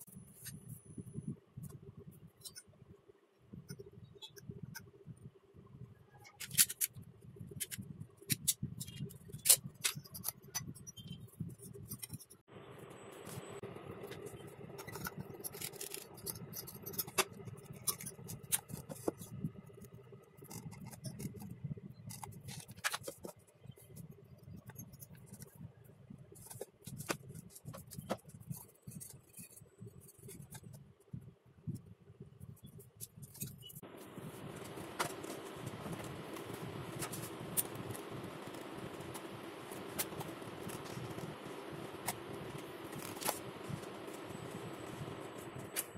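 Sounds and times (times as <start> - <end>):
hands handling metal and wood: 14.0 - 25.6.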